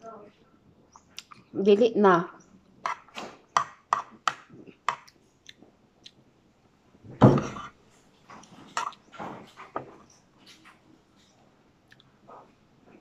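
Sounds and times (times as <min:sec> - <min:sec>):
mouth clicks and chewing: 0:00.9 - 0:01.5, 0:04.9 - 0:06.2, 0:11.8 - 0:12.2.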